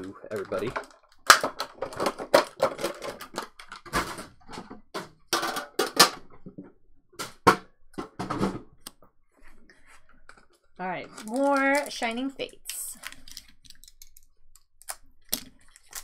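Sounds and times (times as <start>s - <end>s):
plastic packaging crinkling: 10.8s - 16.0s.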